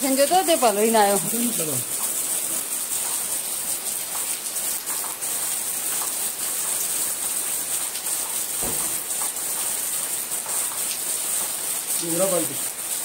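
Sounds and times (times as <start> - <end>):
heavy rain falling: 0.0 - 13.0
dull thump: 8.6 - 9.3.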